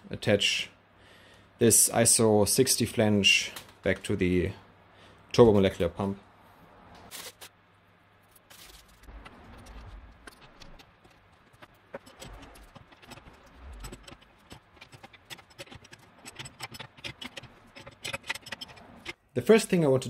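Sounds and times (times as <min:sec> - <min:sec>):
aluminium foil crinkling: 0:07.1 - 0:07.5, 0:08.2 - 0:15.2
metal clicks and scrapes of tools: 0:09.3 - 0:19.2.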